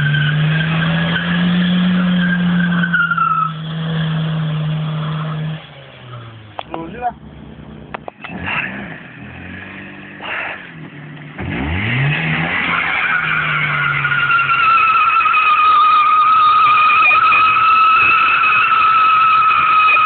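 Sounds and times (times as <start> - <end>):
tyres squealing: 0.0 - 7.0, 12.0 - 20.0
car engine revving: 0.0 - 20.0.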